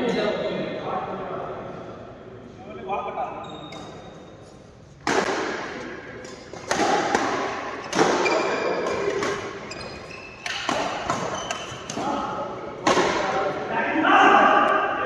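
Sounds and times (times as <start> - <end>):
badminton racket hitting shuttlecock: 5.0 - 9.7, 10.3 - 12.1.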